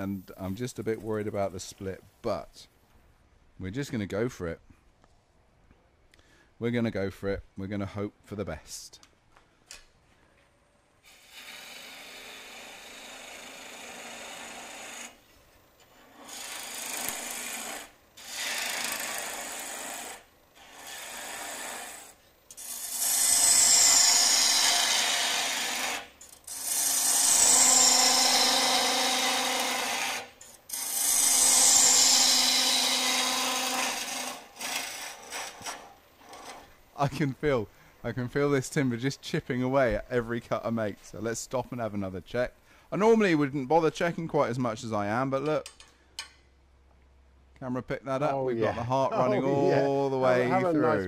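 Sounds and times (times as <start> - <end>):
gouge cutting wood on a lathe: 11.1 - 15.2, 16.1 - 36.6.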